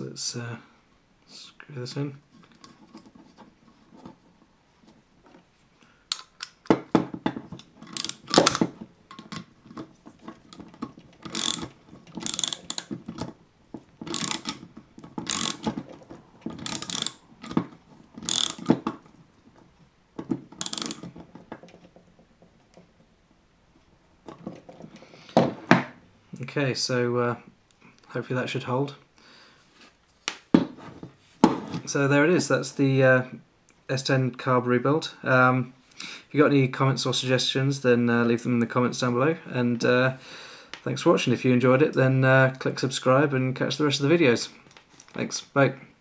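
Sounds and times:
socket ratchet clicking: 7.8s - 9.4s, 11.2s - 13.0s, 14.1s - 14.6s, 15.2s - 15.8s, 16.6s - 17.6s, 18.2s - 18.8s, 20.6s - 21.1s.

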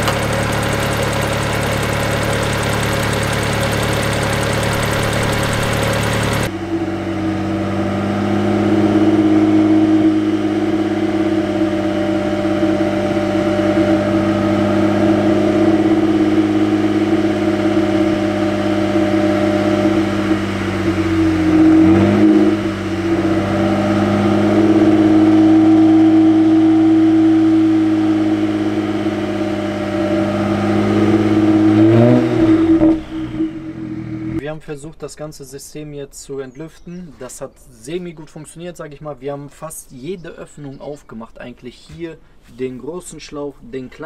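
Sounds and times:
car engine idling: 0.0s - 34.4s.

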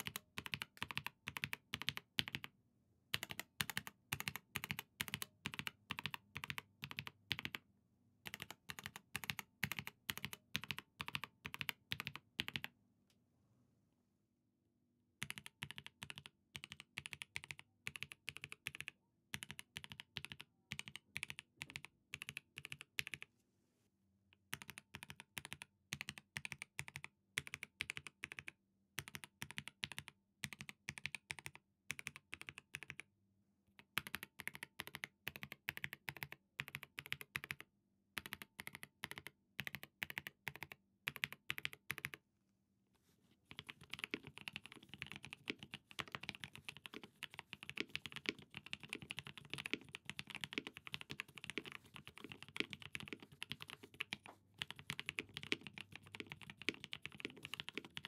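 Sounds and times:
keyboard keystroke clacks: 43.5s - 58.0s.

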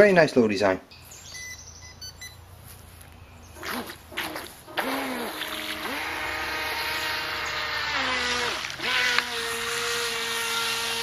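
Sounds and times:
water splashes: 3.6s - 10.8s
electric motor running: 3.6s - 11.0s
hiss of water: 3.7s - 8.9s.

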